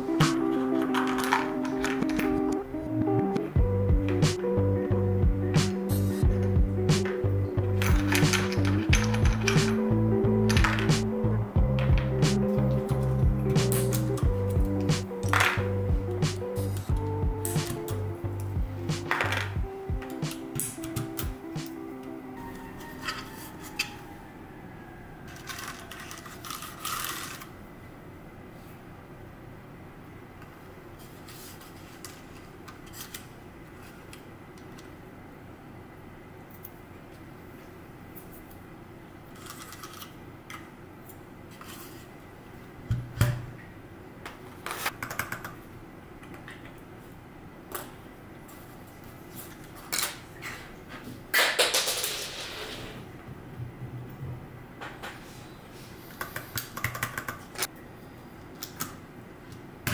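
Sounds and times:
plastic keyboard clicks: 0:56.1 - 0:57.4.

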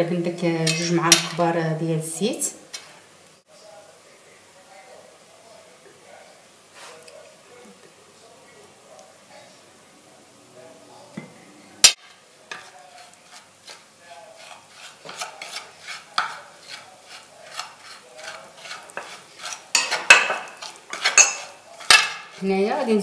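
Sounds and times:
metal spoon scraping a plate: 0:00.6 - 0:01.4, 0:11.9 - 0:22.5.

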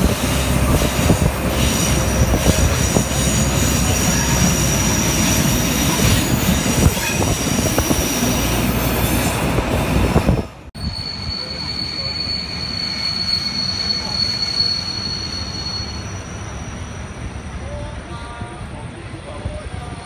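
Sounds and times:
diesel locomotive engine rumble: 0:00.0 - 0:20.0
train rolling into station: 0:00.0 - 0:20.0
train wheel noise: 0:00.0 - 0:20.0
wind: 0:00.0 - 0:20.0
high-pitched squeal: 0:10.8 - 0:17.5.

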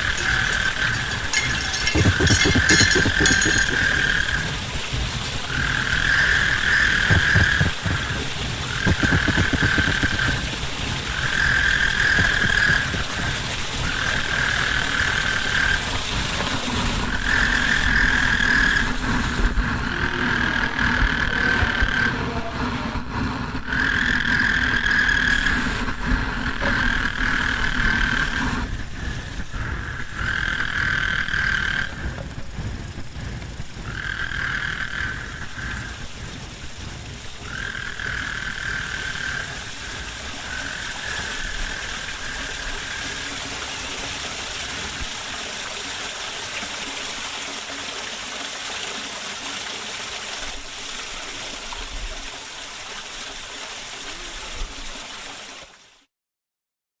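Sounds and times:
hissing rumbling noise bed: 0:00.0 - 0:17.4.

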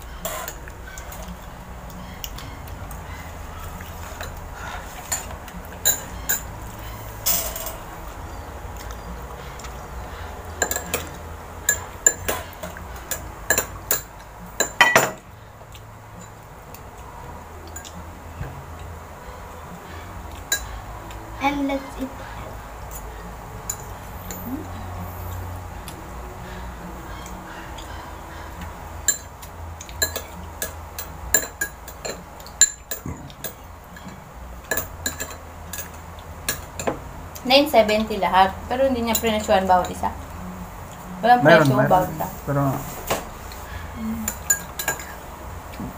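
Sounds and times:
faint low hum: 0:00.0 - 0:45.9
cutlery and dishes clinking: 0:05.0 - 0:06.5, 0:07.2 - 0:07.9, 0:10.6 - 0:15.2, 0:29.1 - 0:37.0, 0:44.2 - 0:45.2.

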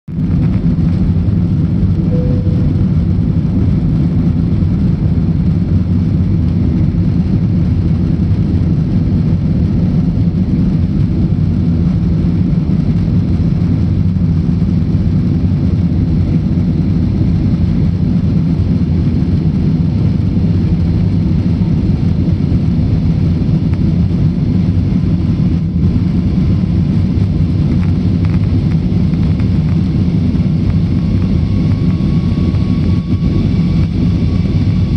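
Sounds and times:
jet cabin engine roar: 0:00.1 - 0:34.9
faint tone: 0:01.9 - 0:03.6.

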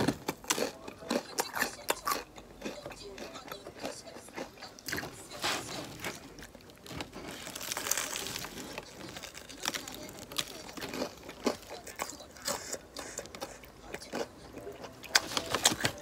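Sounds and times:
crunchy bites and chewing: 0:00.0 - 0:16.0
paper bag rustling: 0:05.0 - 0:10.6.

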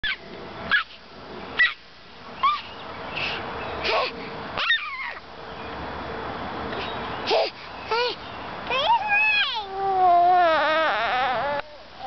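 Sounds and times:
baby squealing with delight: 0:04.6 - 0:05.2, 0:09.1 - 0:11.8
baby breathy laugh: 0:07.3 - 0:08.2.

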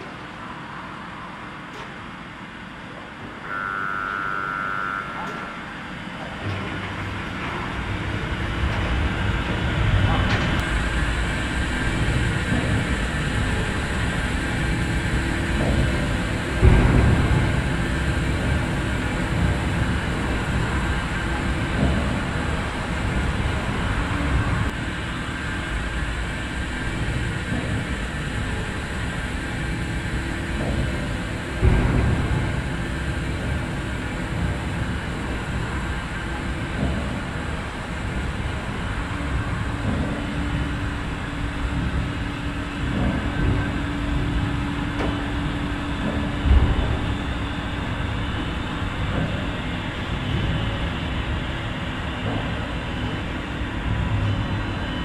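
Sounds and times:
turntable rumble and hum: 0:00.0 - 0:55.0
steady tone: 0:03.4 - 0:06.2.

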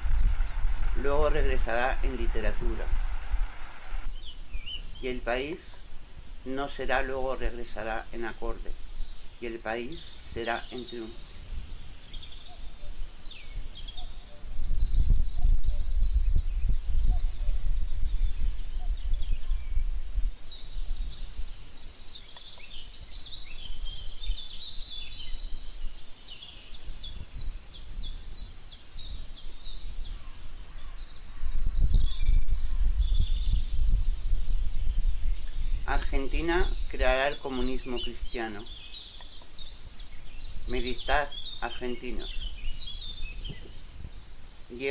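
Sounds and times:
low rumbling noise: 0:00.0 - 0:05.5
birds chirping and trilling: 0:00.0 - 0:44.9.

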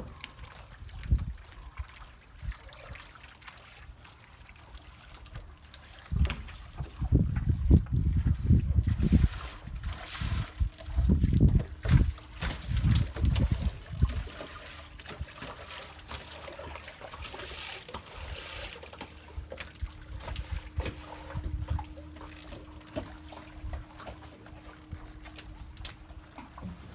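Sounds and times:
water trickling and splashing: 0:00.0 - 0:26.9
fish flopping on boat deck: 0:08.2 - 0:26.9.

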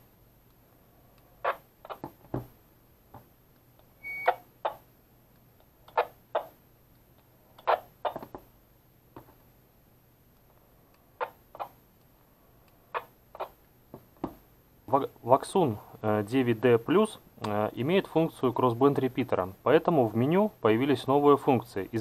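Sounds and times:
short high radio beep: 0:04.0 - 0:04.4.

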